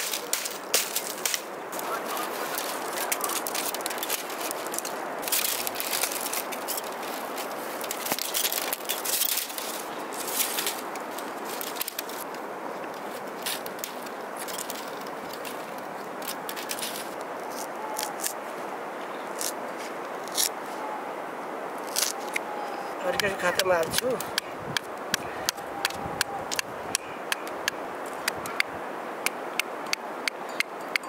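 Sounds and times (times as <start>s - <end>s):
bamboo strips crackling and scraping: 0.0s - 20.8s, 21.8s - 31.0s
steady hiss: 0.0s - 30.8s.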